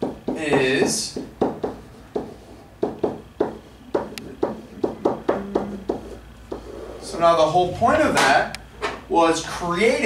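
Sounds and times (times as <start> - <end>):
marker writing on whiteboard: 0.0 - 7.2.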